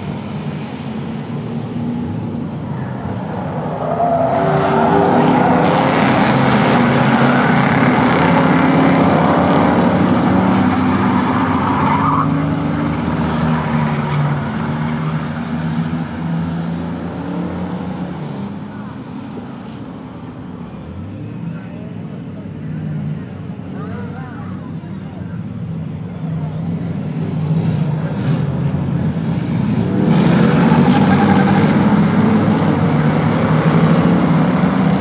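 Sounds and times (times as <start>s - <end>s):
racing car engines passing: 0.0s - 35.0s.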